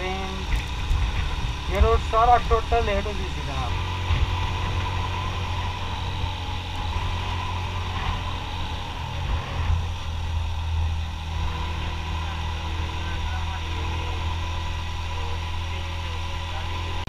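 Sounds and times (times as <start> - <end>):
wind noise on microphone: 0.0 - 12.4
motorcycle engine running: 0.0 - 17.0.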